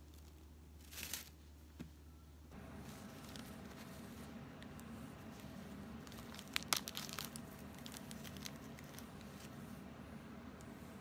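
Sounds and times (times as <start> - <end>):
plastic bag crinkling: 5.3 - 9.6.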